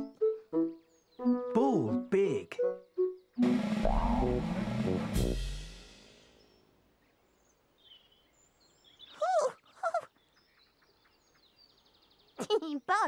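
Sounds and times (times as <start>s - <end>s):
musical sound effect: 3.4s - 6.1s.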